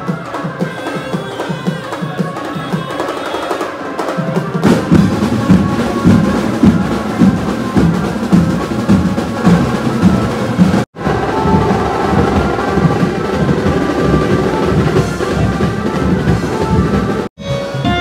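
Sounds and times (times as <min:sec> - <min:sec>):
heavy drumming: 0:00.0 - 0:18.0
procession drums beating: 0:00.0 - 0:18.0.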